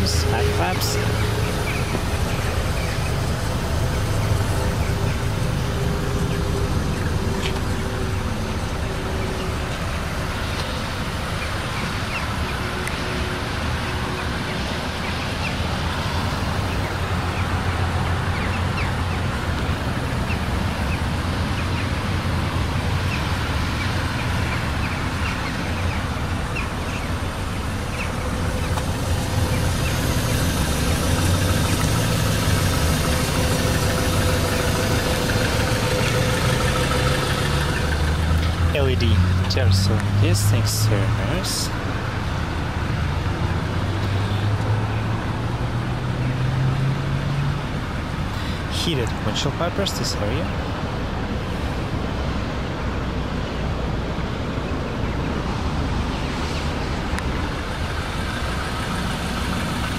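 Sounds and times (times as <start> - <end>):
car engine idling: 0.0 - 46.2, 47.1 - 59.9.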